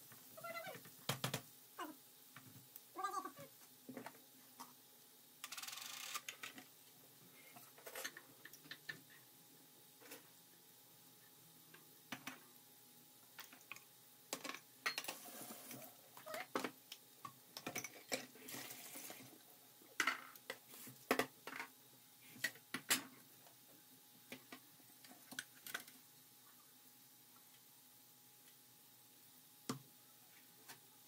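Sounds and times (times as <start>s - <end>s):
onions frying in a pan: 0.0s - 31.0s
running water: 15.0s - 16.7s, 17.6s - 20.0s.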